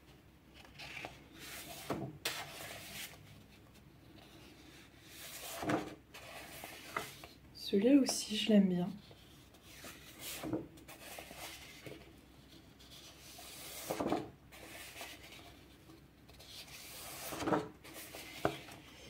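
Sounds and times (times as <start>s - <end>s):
paper sheets swishing: 12.8s - 15.5s.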